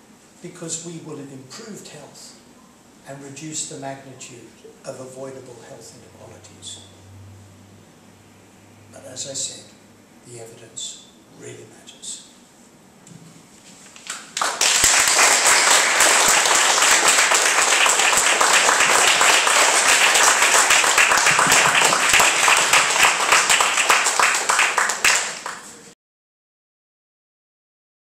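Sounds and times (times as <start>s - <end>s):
audience applauding: 14.1s - 25.9s.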